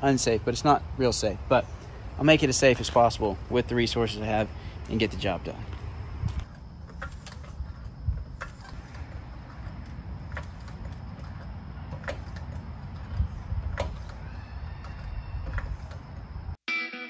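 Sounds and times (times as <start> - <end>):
steady low rumble: 0.0 - 14.2
floor jack clicking: 6.4 - 16.2.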